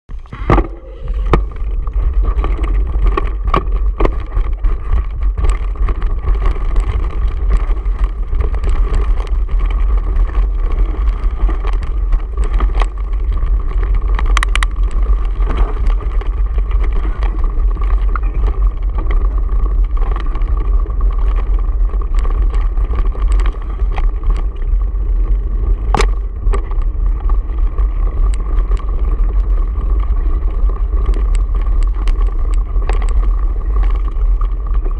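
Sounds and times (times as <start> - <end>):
wind rumble on microphone: 0.0 - 34.9
tyres crunching on loose stones: 0.1 - 34.9
bike knocking on rocks: 0.2 - 34.9.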